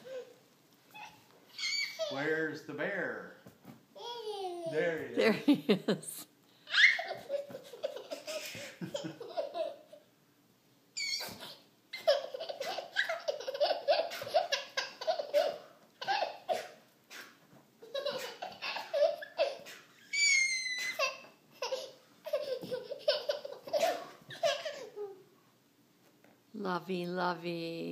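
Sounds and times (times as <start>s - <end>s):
baby laughing: 1.0s - 2.2s, 4.0s - 4.8s, 6.7s - 10.1s, 11.0s - 16.8s, 17.8s - 25.2s.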